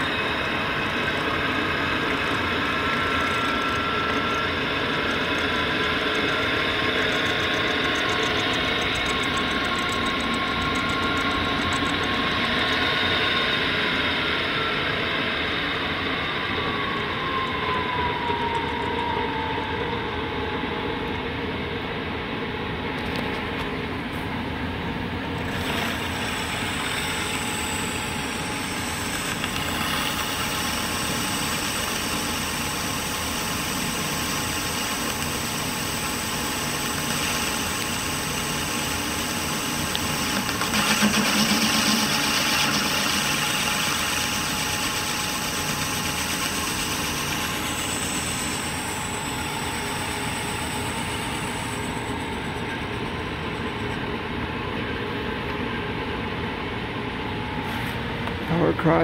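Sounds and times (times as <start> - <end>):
metal lathe humming: 0.0 - 19.2, 25.3 - 56.3
cutting tool cutting metal bar: 25.4 - 51.9.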